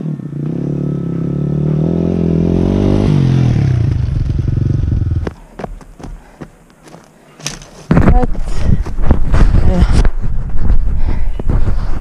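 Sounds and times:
dirt bike engine passing by: 0.0 - 5.3.

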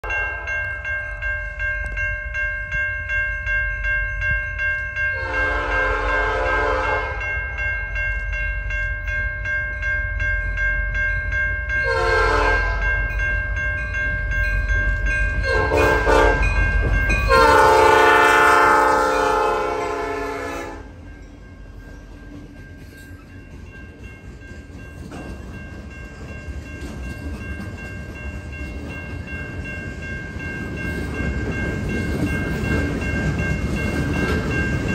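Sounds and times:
train rumble: 0.0 - 34.9
train air horn blasts: 5.2 - 7.3, 11.8 - 12.8, 15.4 - 16.5, 17.3 - 21.0.

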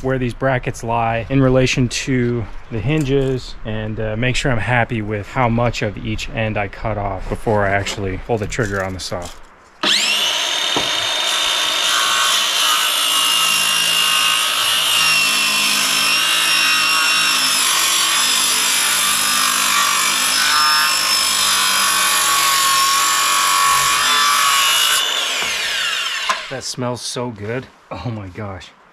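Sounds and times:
circular saw cutting wood: 9.8 - 26.7.

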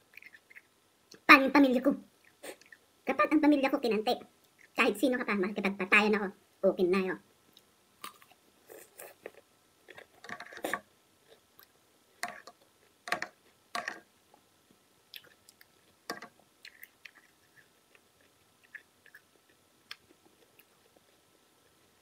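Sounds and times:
person chewing food: 0.0 - 1.2, 7.6 - 14.0, 15.1 - 21.9.

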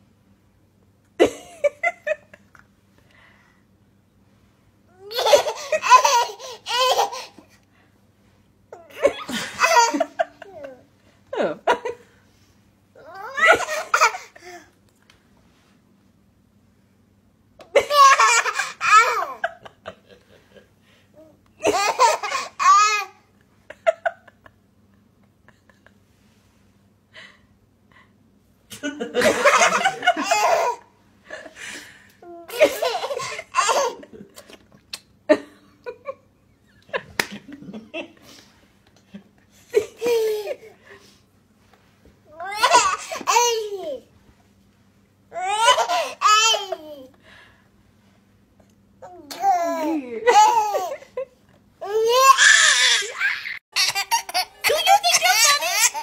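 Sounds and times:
toddler giggling: 5.0 - 7.5, 29.2 - 30.8, 32.3 - 34.6, 49.4 - 56.0.

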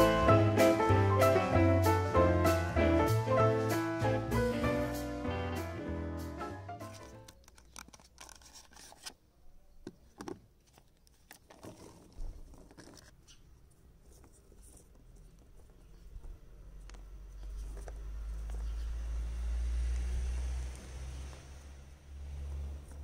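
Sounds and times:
plastic packaging clicks: 7.1 - 9.1.

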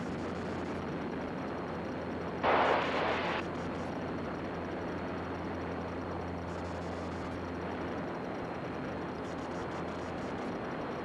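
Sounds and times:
low even hum: 0.0 - 11.0
propeller plane engine droning: 0.0 - 11.0
rushing air: 2.4 - 3.4.

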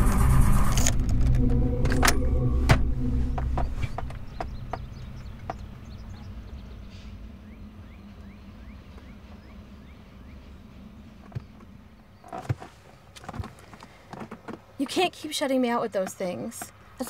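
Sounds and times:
short rising chirps: 0.0 - 7.3
car interior rumble: 0.0 - 16.8.

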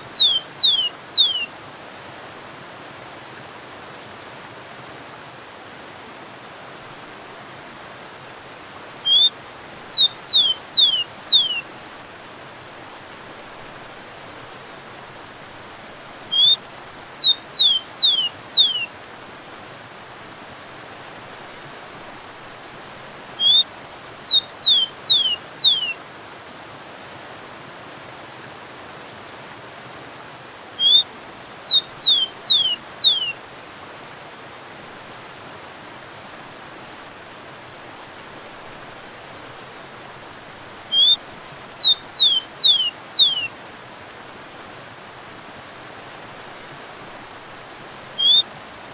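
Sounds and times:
sparrow singing whistled notes: 0.0 - 1.5, 9.1 - 11.6, 16.3 - 18.9, 23.4 - 26.0, 30.8 - 33.4, 40.9 - 43.5, 48.2 - 48.9
waterfall rushing: 30.0 - 48.9.

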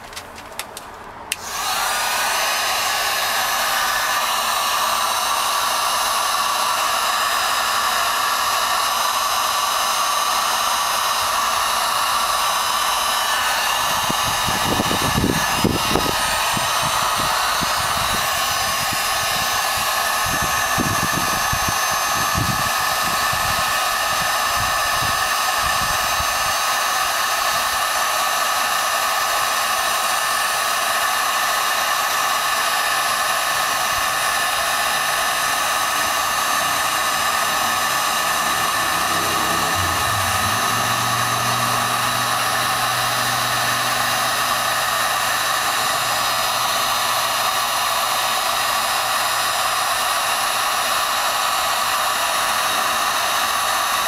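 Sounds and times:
hair dryer running: 1.3 - 54.0
air gusts on microphone: 13.8 - 23.6.

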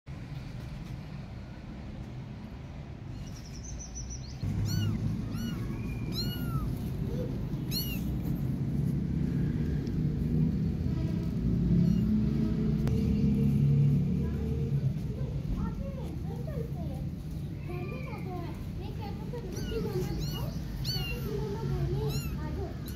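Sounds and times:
kittens mewing: 4.4 - 8.7, 11.7 - 12.4, 19.2 - 22.9.

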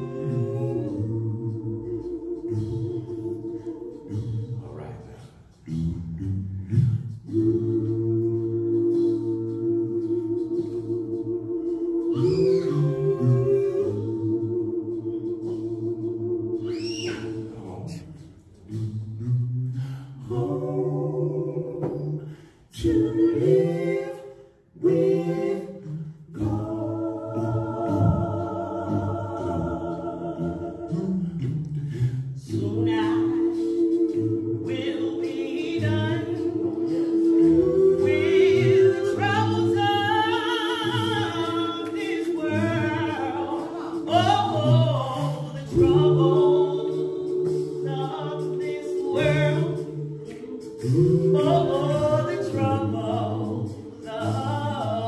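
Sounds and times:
vocal group singing in harmony: 0.0 - 55.0.

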